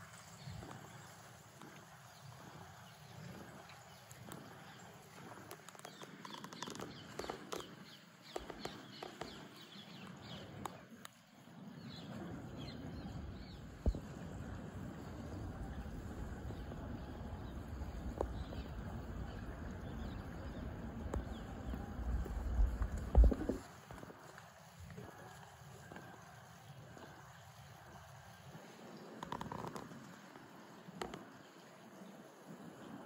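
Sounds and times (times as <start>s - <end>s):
steady low rumble: 11.6s - 24.0s.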